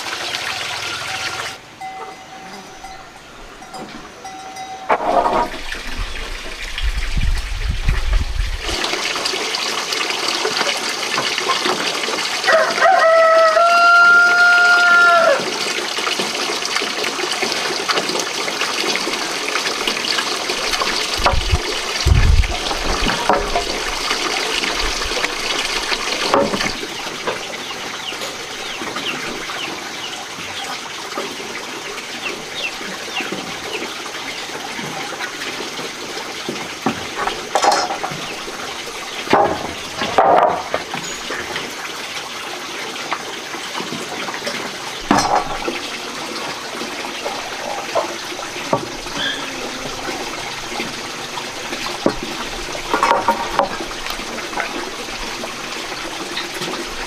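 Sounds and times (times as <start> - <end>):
running water: 0.0 - 57.0
knocks and thumps: 26.2 - 27.4, 39.3 - 41.0.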